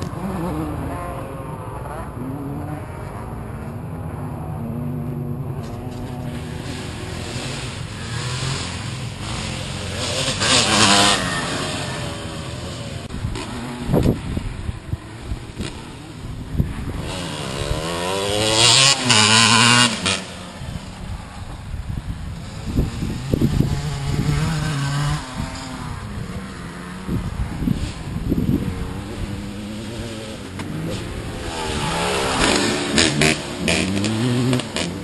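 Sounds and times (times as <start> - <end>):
dirt bike engine revving: 0.0 - 21.2, 22.4 - 35.0.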